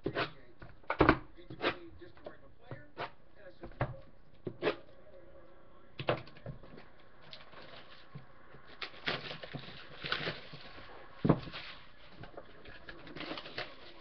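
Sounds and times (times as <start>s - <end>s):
boxes rustling: 6.0s - 14.0s.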